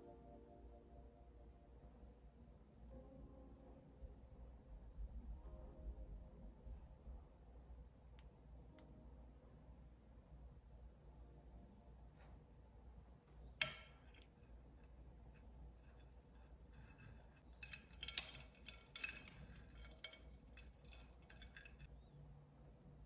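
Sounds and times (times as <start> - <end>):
spoon clinking on ceramic plate: 16.8 - 21.9.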